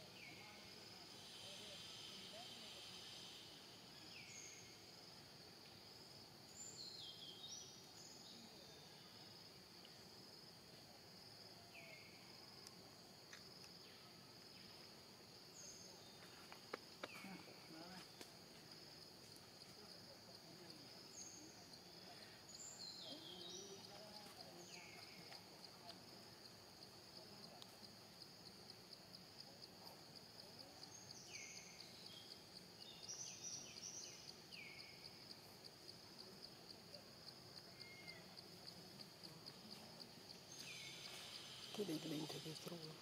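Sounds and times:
high insect drone: 0.0 - 43.0.

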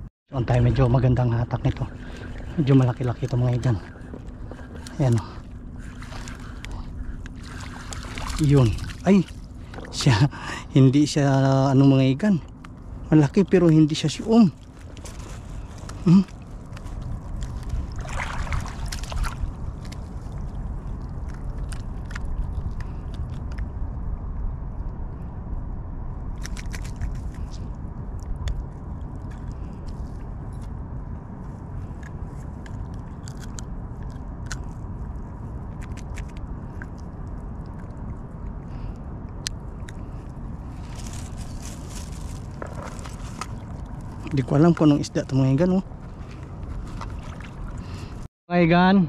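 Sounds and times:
wind rumble on microphone: 0.0 - 48.3.

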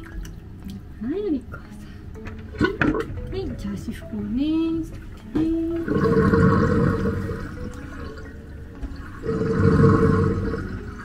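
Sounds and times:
water splashing in a sink: 0.0 - 1.5, 5.0 - 11.0.

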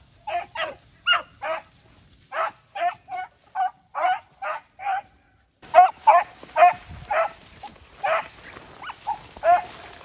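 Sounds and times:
dogs baying: 5.7 - 7.4, 8.0 - 10.0.

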